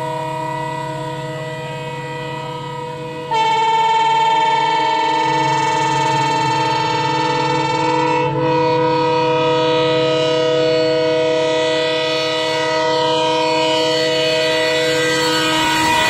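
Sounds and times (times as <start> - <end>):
locomotive air horn chord: 0.0 - 16.0.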